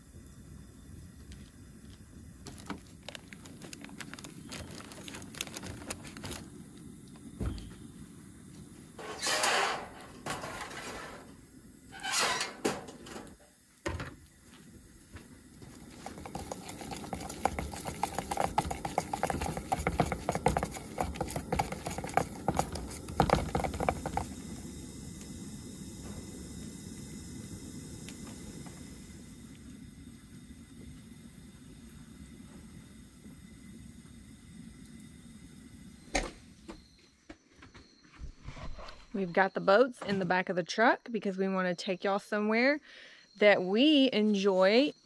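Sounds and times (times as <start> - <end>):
parchment rustling: 2.4 - 6.6, 15.6 - 24.4
spoon stirring in a cup: 15.8 - 24.4.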